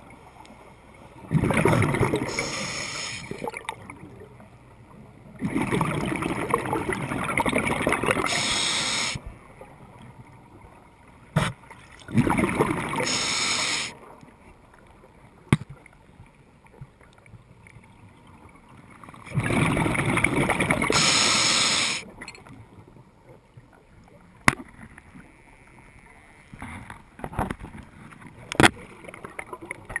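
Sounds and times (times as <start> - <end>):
exhaled bubbles underwater: 1.2 - 4.4, 5.3 - 9.2, 12.0 - 13.9, 19.2 - 22.3.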